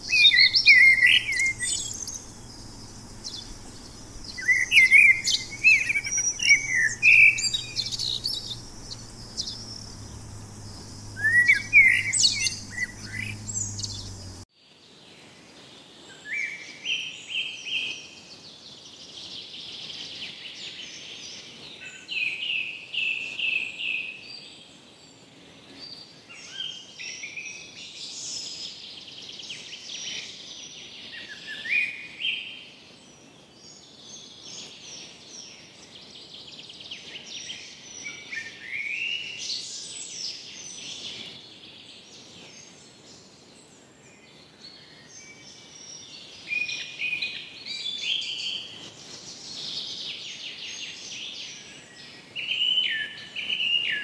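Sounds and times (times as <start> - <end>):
birds chirping: 0.0 - 14.4
low steady hum: 0.0 - 14.4.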